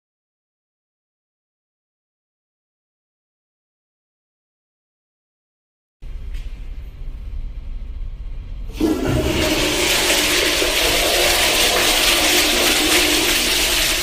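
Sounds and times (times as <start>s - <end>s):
toilet flushing: 8.7s - 14.0s.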